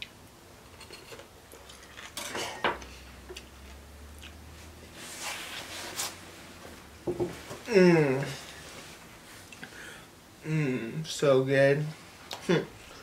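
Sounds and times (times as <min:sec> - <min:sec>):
knife knocking on cutting board: 0:07.0 - 0:07.4.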